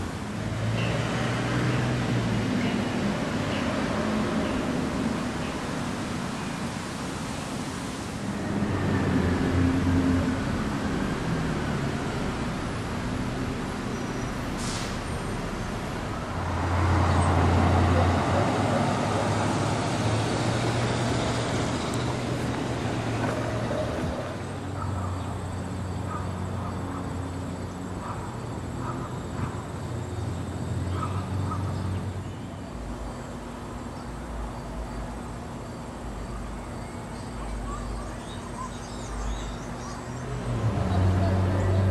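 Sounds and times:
vehicle passing: 0:08.2 - 0:33.7, 0:40.2 - 0:41.9.

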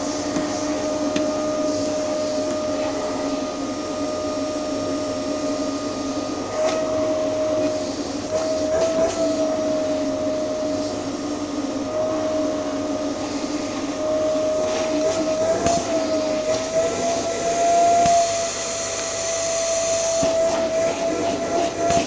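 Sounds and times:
vacuum cleaner running: 0:00.0 - 0:22.0.

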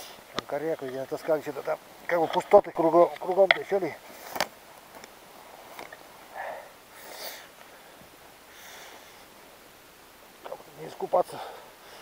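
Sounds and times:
faint outdoor hiss: 0:00.0 - 0:12.0
person breathing softly: 0:06.3 - 0:09.4, 0:11.3 - 0:12.0.

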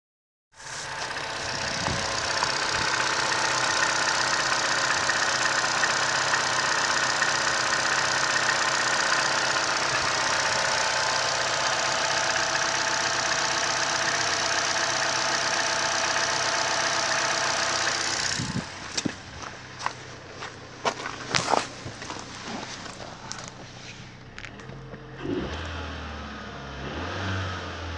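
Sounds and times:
car engine idling: 0:00.6 - 0:25.7.

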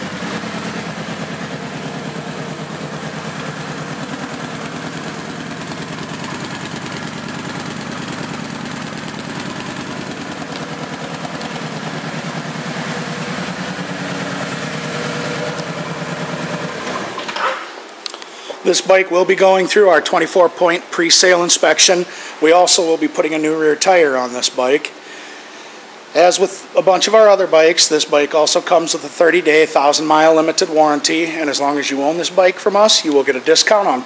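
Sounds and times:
motorcycle engine idling: 0:00.0 - 0:17.2.

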